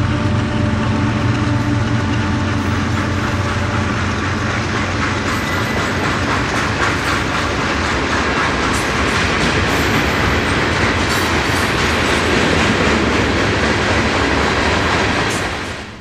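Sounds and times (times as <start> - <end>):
freight train wheels on rails: 0.0 - 16.0
sharp clicks of train wheels: 0.2 - 16.0.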